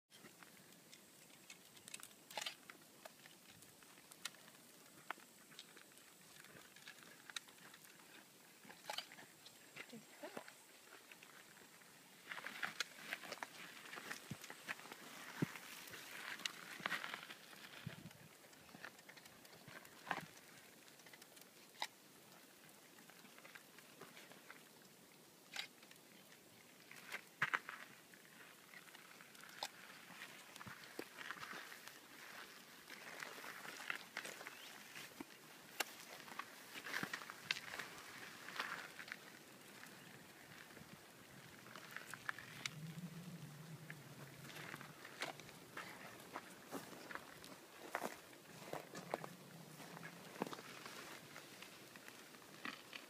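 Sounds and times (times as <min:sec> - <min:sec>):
light clicks and ticks: 0:00.1 - 0:11.3, 0:16.3 - 0:22.4
faint steady hiss: 0:00.1 - 0:53.0.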